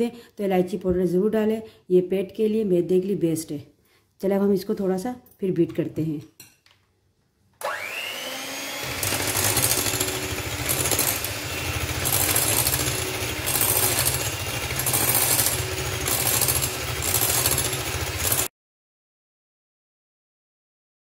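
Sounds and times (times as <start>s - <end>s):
electric hand mixer whining: 7.6s - 18.5s
beaters churning liquid in a bowl: 8.8s - 18.5s.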